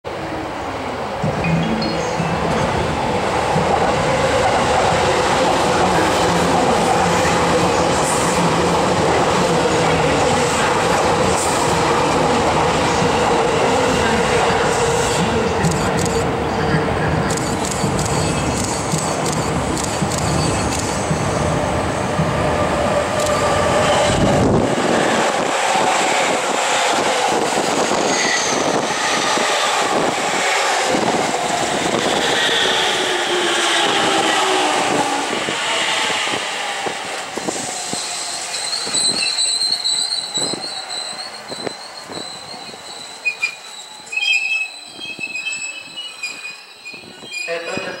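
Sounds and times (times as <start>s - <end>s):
electric train running past: 0.1s - 48.0s
high steady wheel squeal: 31.9s - 47.6s.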